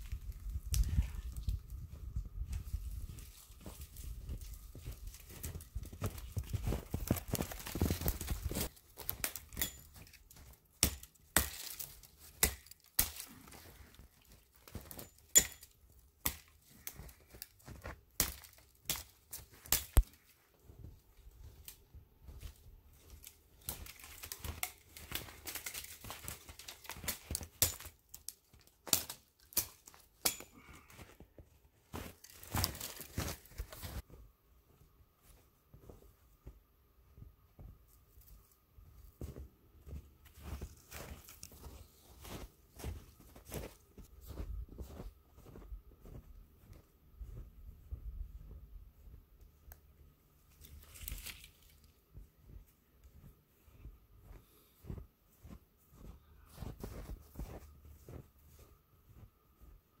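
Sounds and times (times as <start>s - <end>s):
branches rustling: 2.5s - 10.6s, 11.2s - 15.0s, 21.4s - 30.8s, 31.9s - 34.1s, 40.3s - 46.2s, 50.4s - 52.0s
dry twigs snapping: 7.0s - 13.3s, 18.2s - 20.2s, 23.1s - 30.6s, 32.2s - 33.9s, 50.5s - 51.9s.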